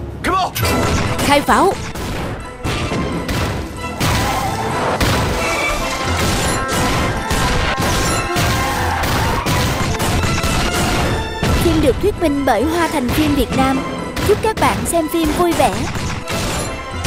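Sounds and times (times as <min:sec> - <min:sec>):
background music: 0:00.0 - 0:17.0
explosions: 0:00.7 - 0:11.8
rapid gunfire: 0:01.8 - 0:11.8, 0:13.1 - 0:17.0.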